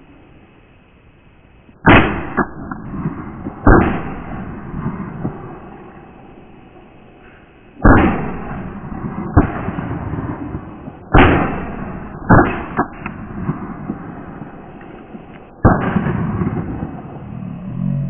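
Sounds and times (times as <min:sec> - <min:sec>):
shotgun shots: 0:01.8 - 0:06.2, 0:07.8 - 0:17.4.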